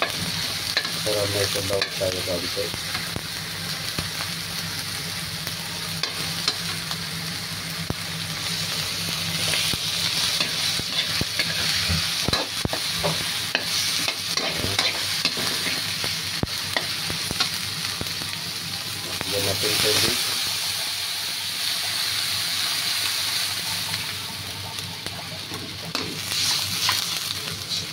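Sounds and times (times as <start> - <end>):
food sizzling in oil: 0.0 - 27.9
spatula scraping wok: 9.3 - 16.0, 25.5 - 27.9.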